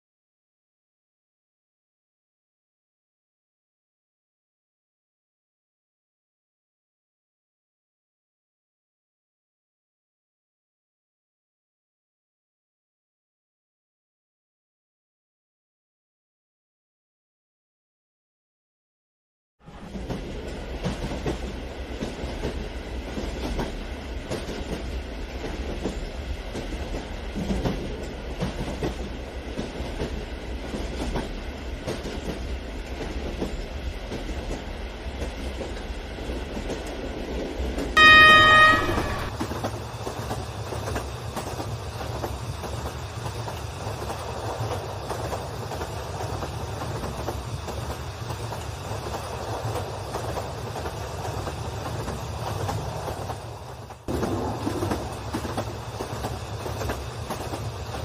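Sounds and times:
train horn: 38.0s - 39.4s.

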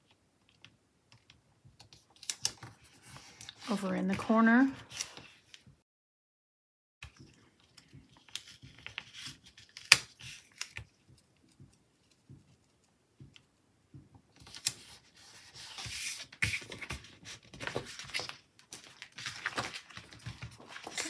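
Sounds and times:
paper rustling and scraping: 8.1s - 10.8s, 14.4s - 21.0s.

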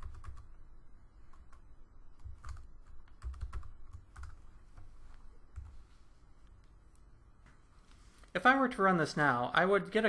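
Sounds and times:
computer keyboard typing: 0.0s - 0.5s, 2.2s - 4.9s, 5.5s - 5.8s.

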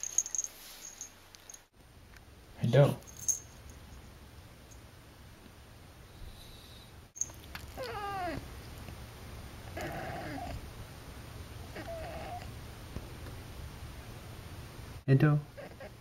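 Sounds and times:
cat meowing: 7.8s - 8.4s, 9.8s - 10.6s, 11.8s - 12.5s.

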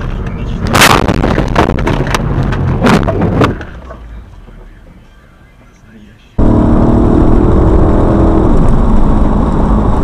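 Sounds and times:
crunching clattering impacts: 0.7s - 4.7s.

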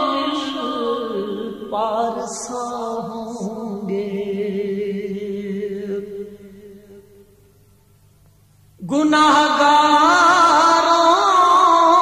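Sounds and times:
man chanting: 0.0s - 7.0s, 8.8s - 12.0s
low vocal drone: 0.0s - 7.3s.

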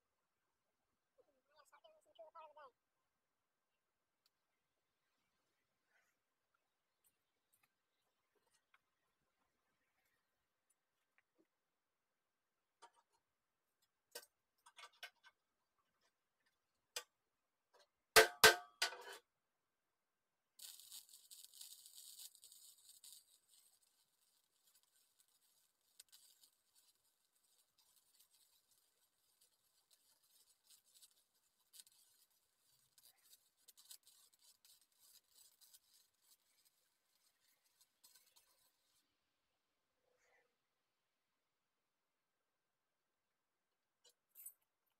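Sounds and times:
faint welding arc crackling: 20.5s - 39.3s.

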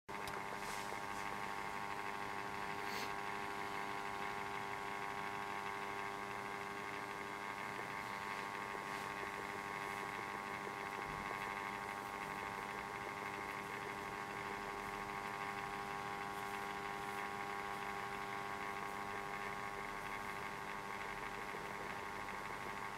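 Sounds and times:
steady electrical hum: 0.1s - 22.9s.

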